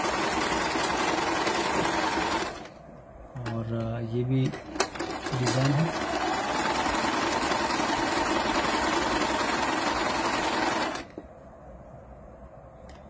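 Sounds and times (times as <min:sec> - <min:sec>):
sewing machine running: 0:00.0 - 0:02.7, 0:04.5 - 0:11.1.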